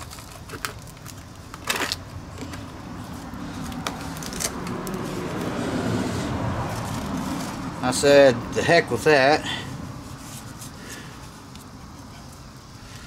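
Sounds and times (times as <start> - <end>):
hands handling batteries: 0.0 - 5.5.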